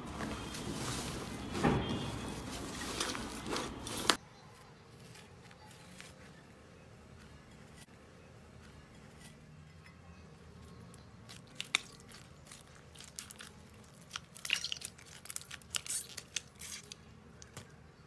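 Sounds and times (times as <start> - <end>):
slime squelching and popping: 11.3 - 17.6.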